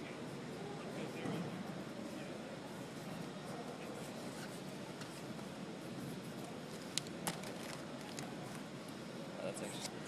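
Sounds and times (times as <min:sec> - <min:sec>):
marker scratching on paper: 0:02.8 - 0:06.5.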